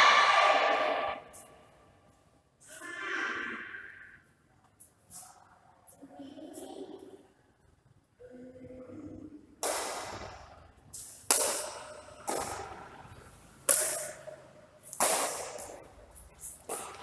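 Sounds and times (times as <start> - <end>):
rackets hitting shuttlecock: 9.6 - 17.0.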